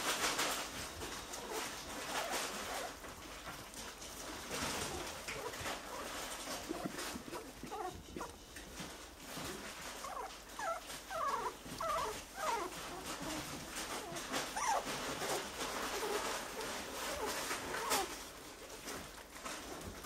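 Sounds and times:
small clicks and rustling: 0.0 - 20.0
puppies whimpering: 4.2 - 18.3.

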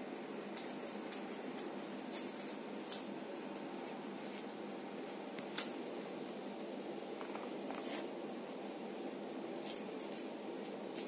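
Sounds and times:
room hum: 0.0 - 11.0
gloved hands clicking and rustling: 0.5 - 3.6.

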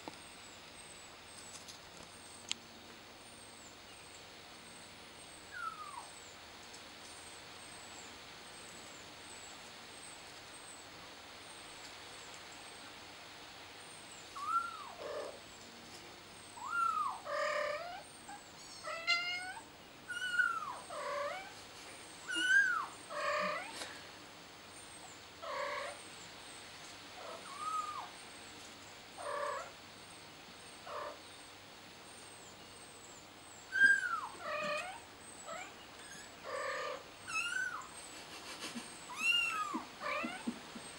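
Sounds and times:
kitten meowing: 18.9 - 21.5, 22.3 - 23.7, 36.5 - 37.8, 39.1 - 40.5.

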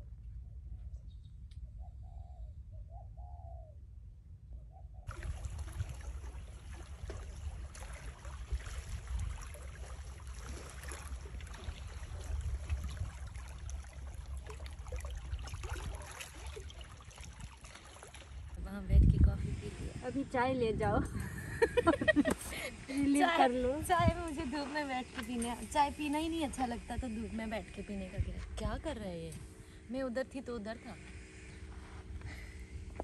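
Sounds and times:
small waves lapping on rocks: 5.1 - 18.7.

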